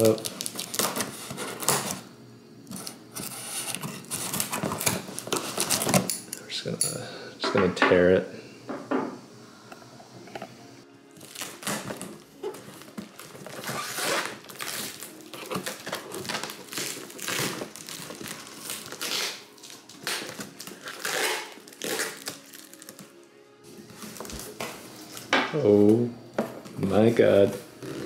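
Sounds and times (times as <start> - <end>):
packing tape ripping off: 0.0 - 6.3, 11.1 - 23.2
cardboard rustling: 2.7 - 6.1, 11.2 - 19.1.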